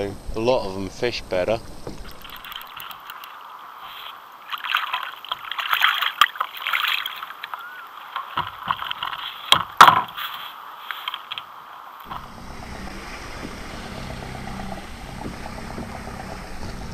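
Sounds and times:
water sloshing: 1.5 - 16.9
fishing reel winding: 2.1 - 3.4
sharp knocks on kayak: 8.2 - 10.2, 15.1 - 16.9.

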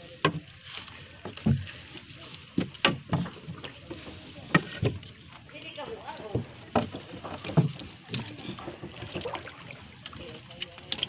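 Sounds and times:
wind and water hiss: 0.0 - 11.0
knocks against wooden boat: 2.5 - 3.8, 6.3 - 9.4.

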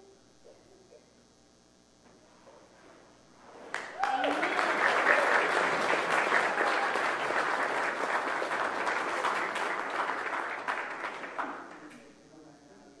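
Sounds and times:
congregation applauding: 3.7 - 12.0.

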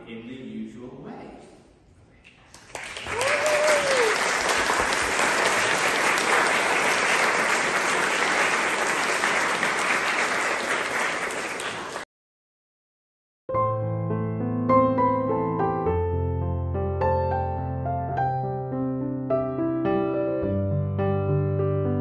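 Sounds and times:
crowd applauding: 2.5 - 12.1
person whooping: 3.1 - 4.3.

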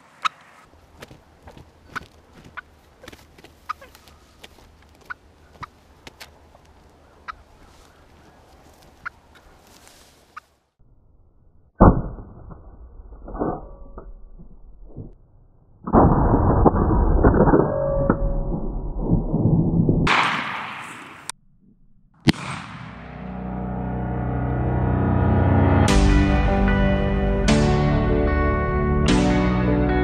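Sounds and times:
turkey commotion: 0.2 - 10.5
faint rustling: 0.7 - 10.6
turkey clucking: 1.5 - 4.4, 7.0 - 9.6.

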